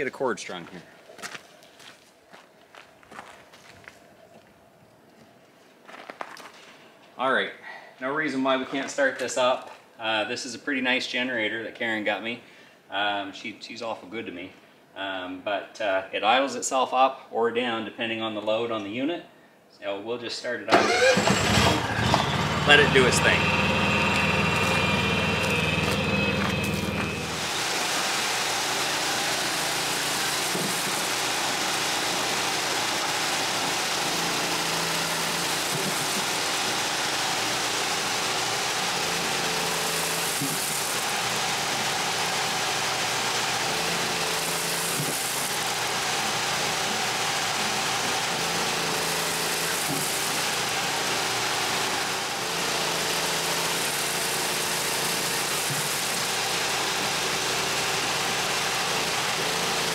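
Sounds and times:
generator engine hum: 0:20.7 - 0:59.9
dust collector motor whirring: 0:20.8 - 0:59.9.

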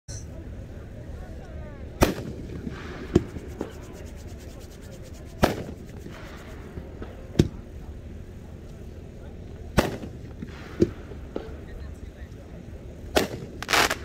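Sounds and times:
firework sharp bangs: 0:02.0 - 0:03.9, 0:05.2 - 0:07.8, 0:09.7 - 0:11.8, 0:13.1 - 0:14.0.

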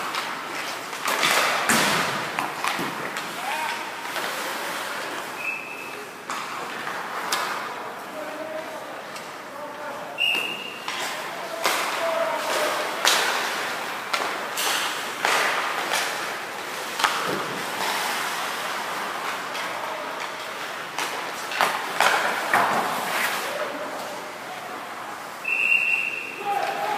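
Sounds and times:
skates scraping on ice: 0:00.0 - 0:05.4, 0:10.0 - 0:24.7
sharp cracks of sticks and pucks: 0:00.0 - 0:05.6, 0:06.2 - 0:07.9, 0:10.2 - 0:24.3.

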